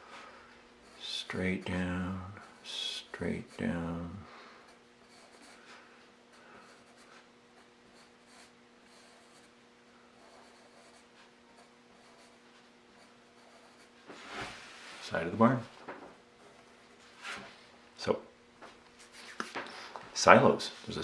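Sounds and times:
low steady hum: 0.0s - 21.0s
pencil scratching on paper: 4.7s - 14.0s.

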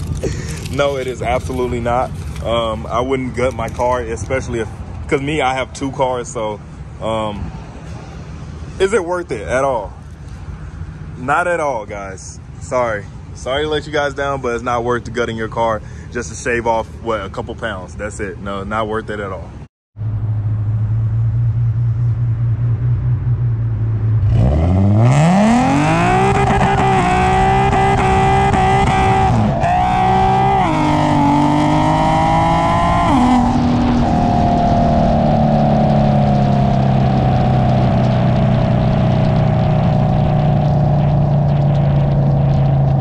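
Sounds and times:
car engine accelerating: 20.0s - 43.0s.

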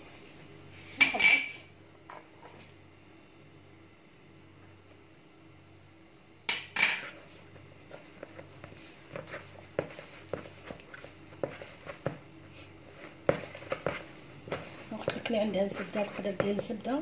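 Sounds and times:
dough pressed by hand: 7.8s - 17.0s.

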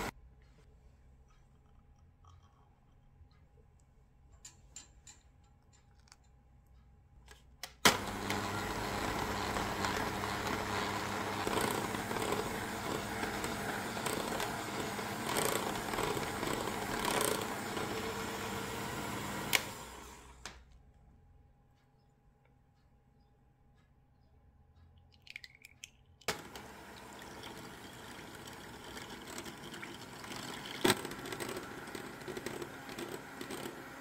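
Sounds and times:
hand mixer running: 7.9s - 20.4s, 26.3s - 34.0s.

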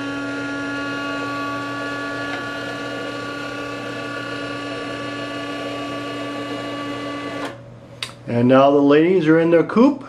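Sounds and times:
electric motor humming: 0.0s - 7.6s.

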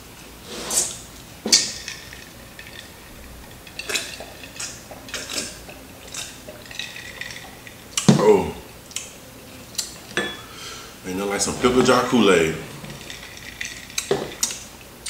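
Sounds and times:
person gulping and swallowing: 7.9s - 8.8s.

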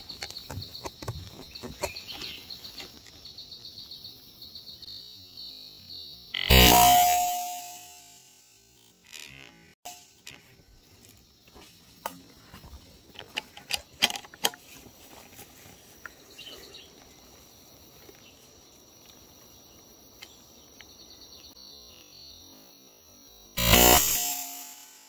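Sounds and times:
high-pitched insect drone: 4.0s - 11.7s, 20.8s - 25.0s
camera handling clicks and knocks: 13.2s - 14.6s.

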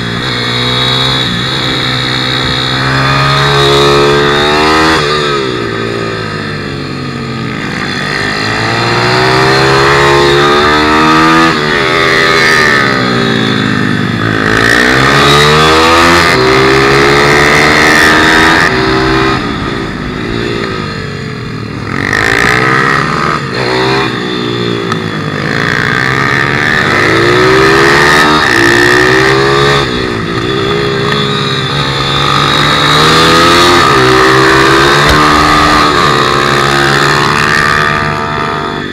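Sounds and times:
motorbike engine revving: 0.0s - 38.9s.

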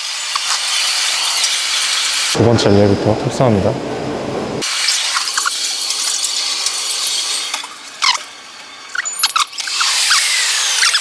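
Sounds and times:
high garbled squeaks: 8.0s - 8.3s, 8.9s - 11.0s.

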